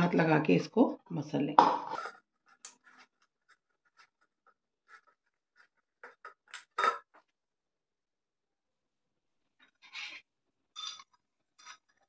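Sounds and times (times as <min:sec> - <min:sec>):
dough being kneaded by hand: 0:01.8 - 0:06.8.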